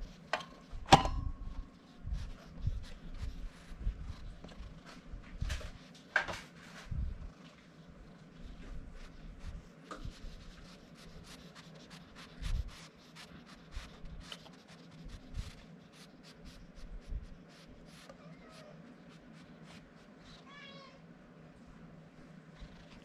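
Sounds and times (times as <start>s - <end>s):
hand stroking fur: 1.5s - 7.2s, 8.3s - 20.2s.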